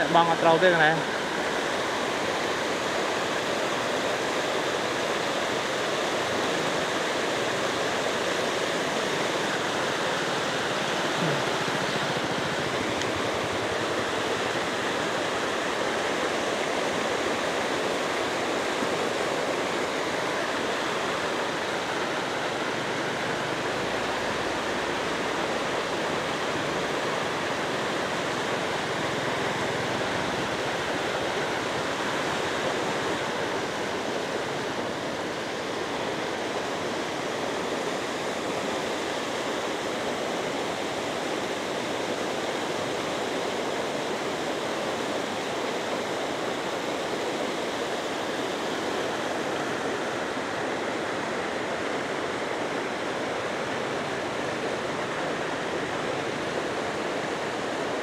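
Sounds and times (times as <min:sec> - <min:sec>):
floodwater rushing: 0:00.0 - 0:58.0.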